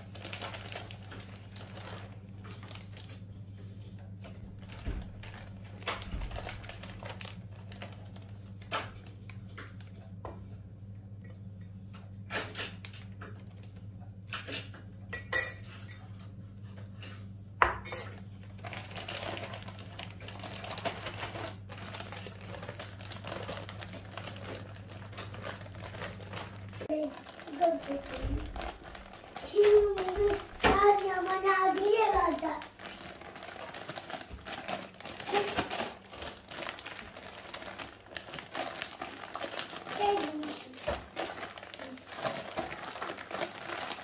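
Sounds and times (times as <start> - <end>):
plastic bag rustling: 0.0 - 3.3, 4.4 - 9.9, 18.1 - 44.0
low steady hum: 0.0 - 44.0
spoon clinking on ceramic bowls: 15.1 - 16.1.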